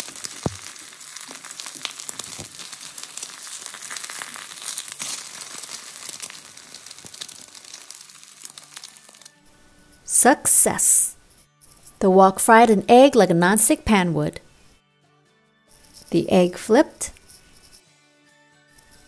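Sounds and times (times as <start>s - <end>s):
egg sizzling in hot oil: 0.0s - 9.4s.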